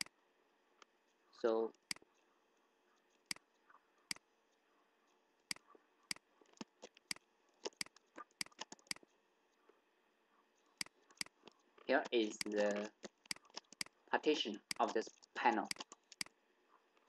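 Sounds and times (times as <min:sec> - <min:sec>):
computer mouse clicking: 0:05.5 - 0:09.1, 0:10.8 - 0:14.0, 0:14.6 - 0:16.4.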